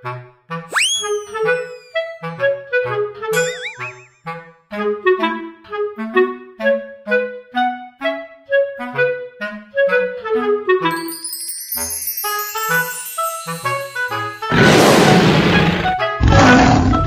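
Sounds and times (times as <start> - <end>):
bouncy clarinet tune with bass: 0.0 - 11.0
wobbling boing sound effect: 3.4 - 4.1.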